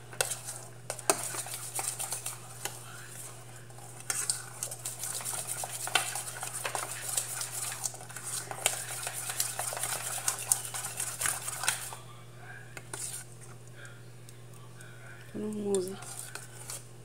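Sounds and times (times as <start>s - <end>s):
spoon stirring thick mixture: 0.0s - 17.0s
spoon scraping metal pot: 15.9s - 16.8s.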